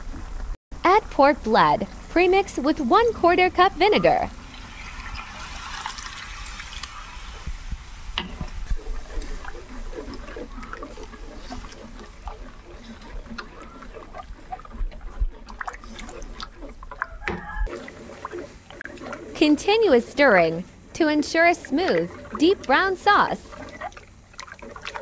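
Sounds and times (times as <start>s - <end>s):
sauce bubbling and gurgling: 1.9s - 25.0s
liquid pouring into a pot: 4.4s - 7.4s.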